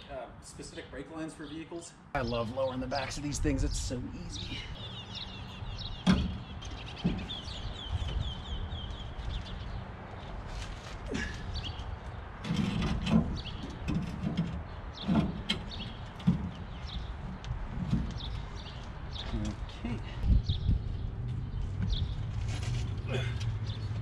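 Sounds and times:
birds chirping: 0.0 - 24.0
metal clanks and knocks: 6.0 - 7.5, 12.4 - 18.4.

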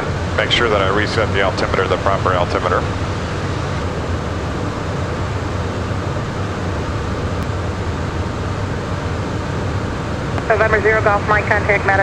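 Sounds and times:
jet engine noise: 0.0 - 12.0
low hum: 0.0 - 12.0.

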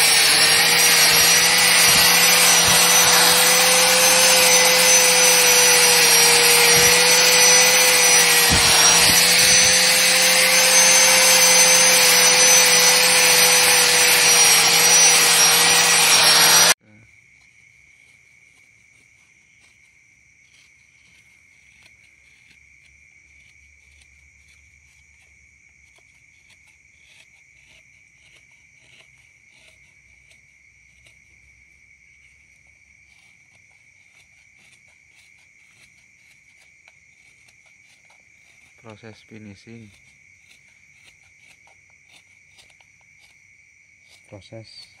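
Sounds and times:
angle grinder grinding steel: 0.0 - 16.8
insects chirping: 16.9 - 45.0.

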